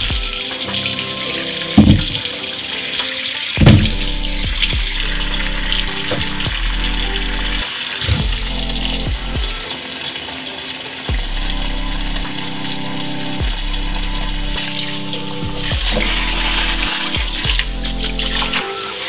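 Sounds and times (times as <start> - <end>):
background music: 0.0 - 19.0
tap water splashing in a sink: 0.1 - 2.3.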